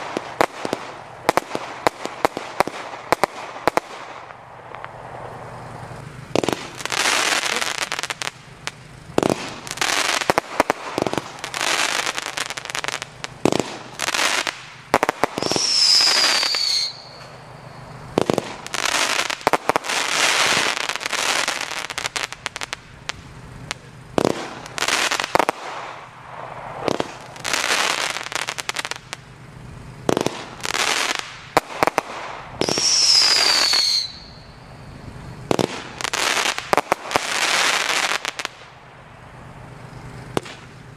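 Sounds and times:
falling firework whistle: 0:00.0 - 0:29.2, 0:30.0 - 0:38.8
firework crackling: 0:00.0 - 0:40.9
firework launch thumps: 0:06.0 - 0:17.4, 0:18.1 - 0:29.2, 0:30.0 - 0:34.1, 0:34.9 - 0:38.8, 0:39.9 - 0:40.8.

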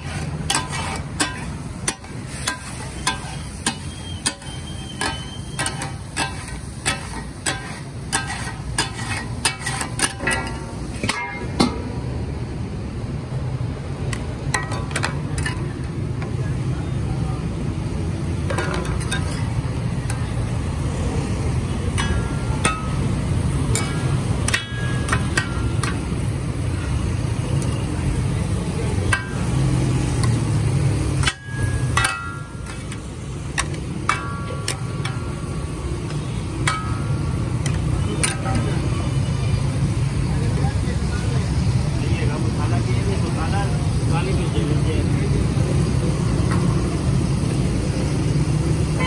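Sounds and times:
spatulas clanking on griddle: 0:00.0 - 0:12.0, 0:14.4 - 0:16.0, 0:18.4 - 0:39.2
steel bowl clanking down: 0:31.2 - 0:32.8.

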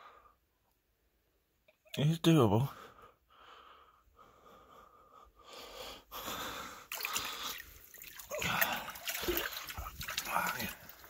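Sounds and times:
person breathing hard and wheezing: 0:02.8 - 0:11.0
water splashing and sloshing: 0:06.8 - 0:11.0.

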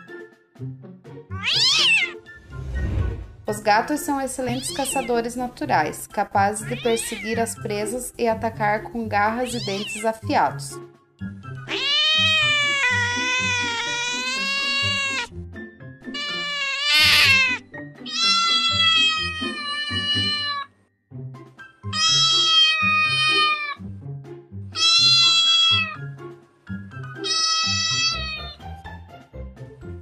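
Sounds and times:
cat meowing: 0:01.3 - 0:02.2, 0:04.4 - 0:05.2, 0:06.6 - 0:07.4, 0:09.4 - 0:10.2, 0:11.6 - 0:15.3, 0:16.1 - 0:20.7, 0:21.9 - 0:23.8, 0:24.8 - 0:26.1, 0:27.2 - 0:28.6.

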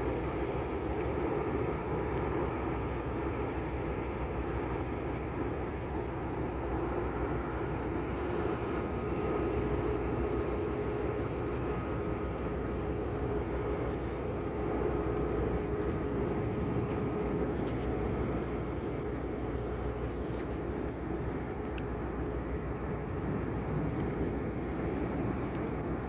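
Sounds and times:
faint constant hum: 0:00.0 - 0:26.0
ship machinery engine drone: 0:00.0 - 0:26.0.

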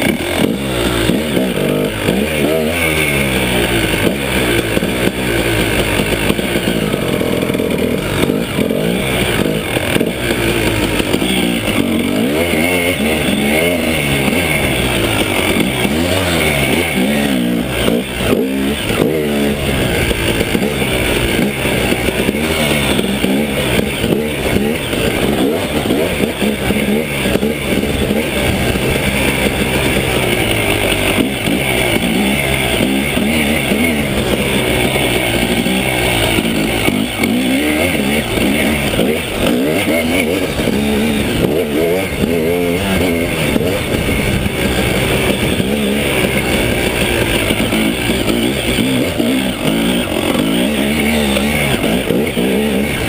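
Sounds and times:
two-stroke motorcycle engine revving: 0:00.0 - 0:53.0.

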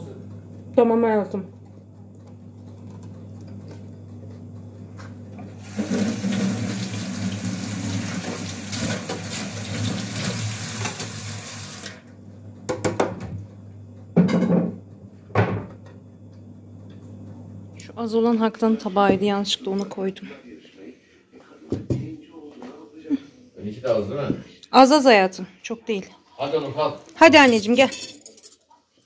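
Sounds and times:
kitchen tap running: 0:05.6 - 0:12.0.

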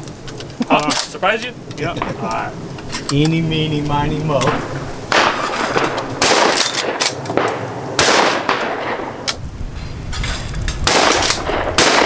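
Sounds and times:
shotgun shots with echo: 0:04.5 - 0:09.2, 0:10.8 - 0:12.0.

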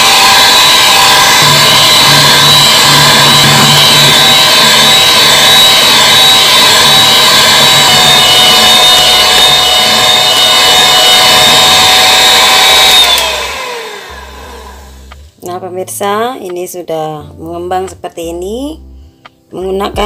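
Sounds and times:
electric hand mixer whining: 0:00.0 - 0:15.2.

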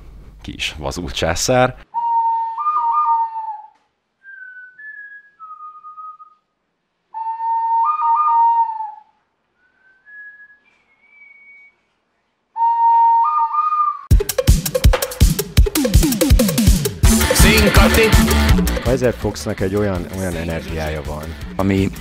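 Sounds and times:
bird whistle blasts: 0:02.0 - 0:03.6, 0:07.2 - 0:09.0, 0:09.6 - 0:11.8, 0:12.6 - 0:14.1.

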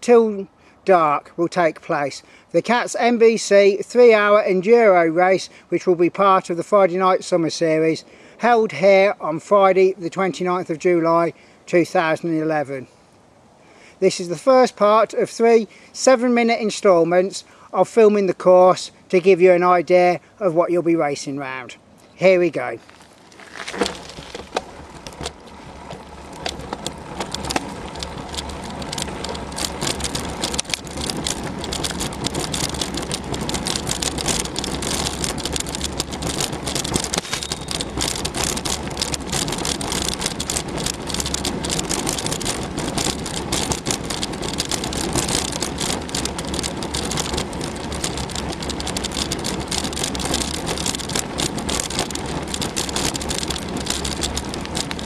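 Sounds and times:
bike rattles and knocks: 0:22.7 - 0:55.0
mountain bike rushing on dirt trail: 0:22.8 - 0:55.0.

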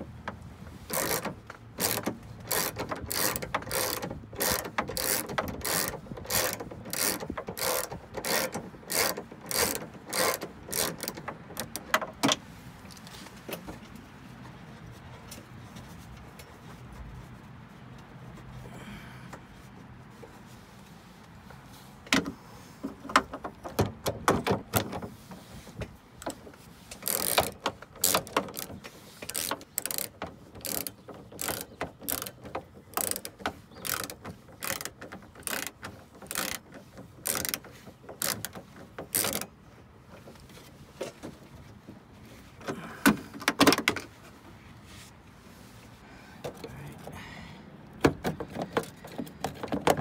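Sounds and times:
socket ratchet clicking: 0:00.9 - 0:12.0, 0:27.0 - 0:36.6, 0:37.2 - 0:39.5.

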